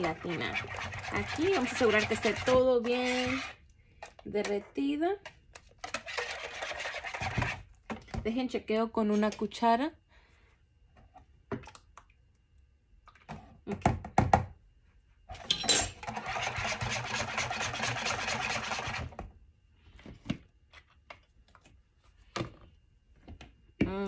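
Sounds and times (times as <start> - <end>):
whisk beating liquid in bowl: 0.0 - 3.6, 5.8 - 7.7, 16.0 - 19.2.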